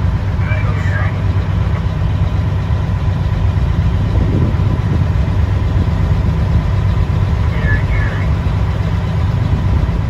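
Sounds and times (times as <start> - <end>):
diesel engine droning: 0.0 - 10.0
faint steady whine: 5.7 - 8.9.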